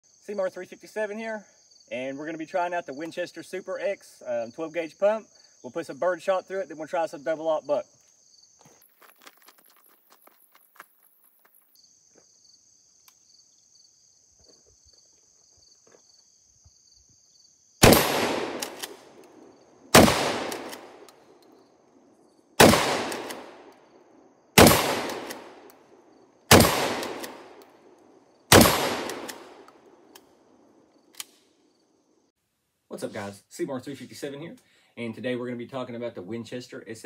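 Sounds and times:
shotgun shots with echo: 17.8 - 19.2, 19.9 - 21.1, 22.6 - 23.7, 24.6 - 25.7, 26.5 - 27.6, 28.5 - 29.6.

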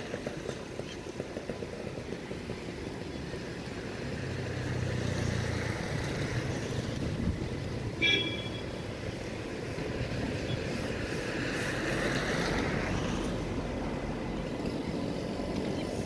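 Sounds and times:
train rumbling: 0.0 - 8.0, 8.6 - 16.0
wind on microphone: 6.8 - 7.8.

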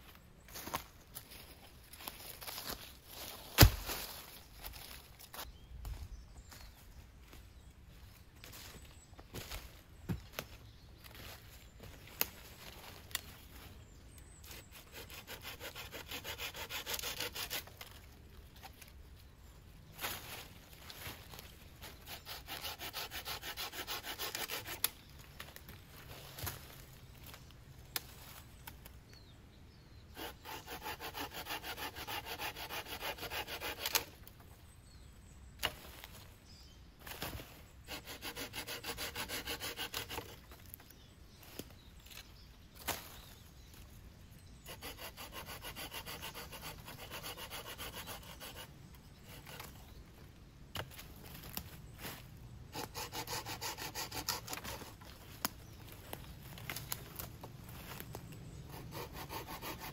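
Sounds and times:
hand tool scraping wood: 14.5 - 17.8, 21.9 - 24.9, 30.2 - 34.1, 37.8 - 40.6, 44.6 - 49.8, 52.7 - 55.2, 58.7 - 59.9.

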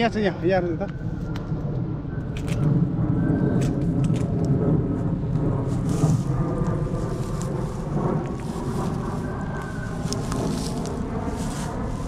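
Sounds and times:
low rumble: 0.9 - 12.0
dry grass rustling and snapping: 2.3 - 2.7, 3.5 - 4.6, 5.2 - 12.0.

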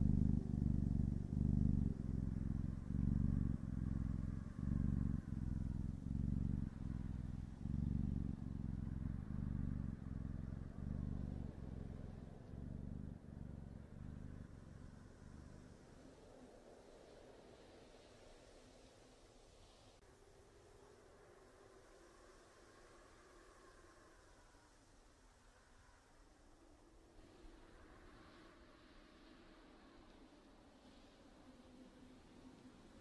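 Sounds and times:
kitten purring: 0.0 - 18.9.

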